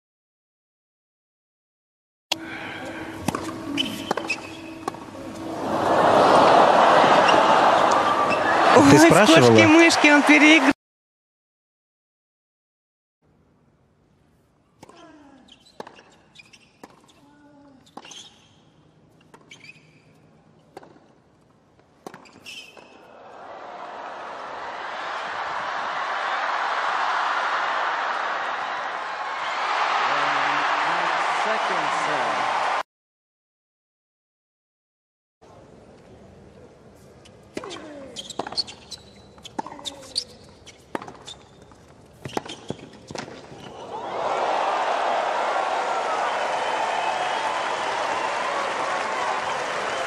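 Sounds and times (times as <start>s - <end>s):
racket hitting tennis ball: 3.2s - 5.1s, 39.5s - 41.3s, 42.2s - 43.6s
shoe squeaks on court: 3.7s - 5.0s, 15.4s - 20.3s, 22.1s - 23.1s, 37.6s - 43.8s
crowd noise: 5.1s - 10.8s, 23.0s - 32.8s, 43.6s - 50.0s.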